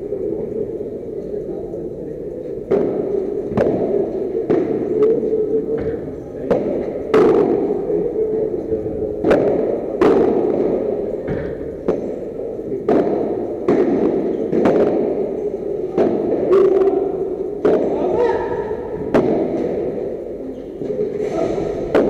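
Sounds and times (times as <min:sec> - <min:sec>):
steady background noise: 0:00.0 - 0:22.0
ball struck with rackets: 0:02.7 - 0:05.1, 0:05.7 - 0:07.8, 0:09.2 - 0:20.2, 0:21.4 - 0:22.0.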